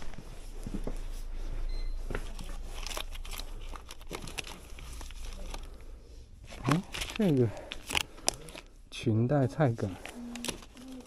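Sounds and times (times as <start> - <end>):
plastic packets crinkling: 2.2 - 8.8, 9.7 - 11.0.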